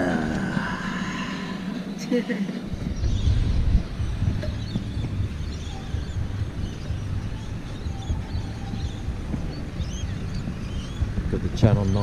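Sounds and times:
birds chirping and calling: 0.0 - 12.0
steady low rumble: 0.0 - 12.0.

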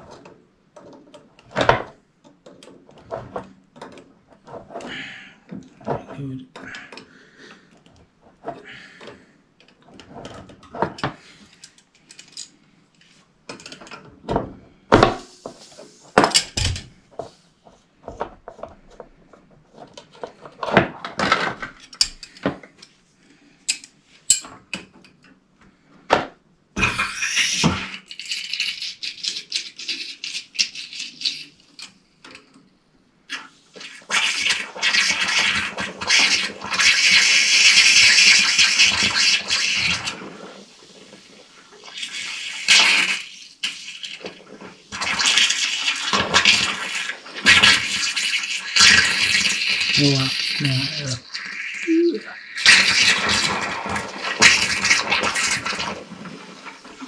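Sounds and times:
hiss: 26.8 - 29.2.

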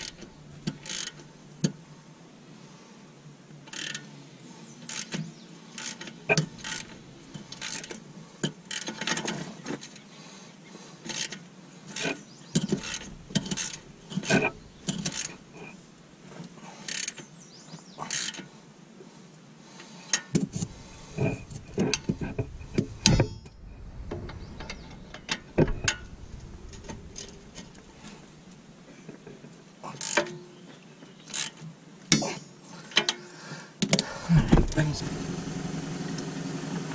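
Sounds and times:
hand ratchet clicking: 0.0 - 1.2, 3.7 - 4.0, 5.8 - 8.0, 8.7 - 9.1, 12.7 - 15.4, 16.9 - 17.2, 18.1 - 18.4.

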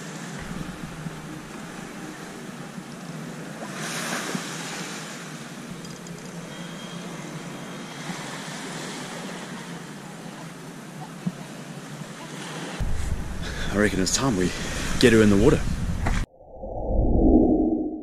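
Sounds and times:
small waves breaking on shore: 0.0 - 15.2
wind: 0.0 - 18.0.

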